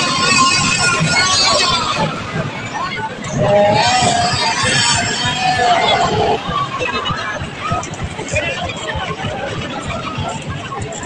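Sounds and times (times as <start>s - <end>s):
voice held on wavering pitch: 0.0s - 7.4s
crowd talking: 0.0s - 11.0s.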